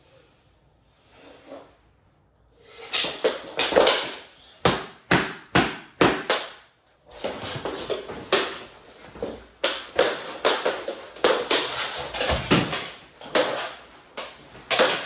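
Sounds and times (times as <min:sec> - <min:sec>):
hockey sticks clacking: 0:02.8 - 0:15.0
knees and sticks scuffing floor: 0:06.1 - 0:15.0.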